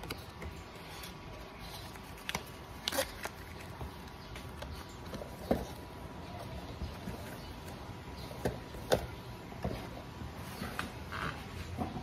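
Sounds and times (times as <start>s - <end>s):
paper being handled and shuffled: 0.0s - 8.9s
low background noise: 0.0s - 12.0s.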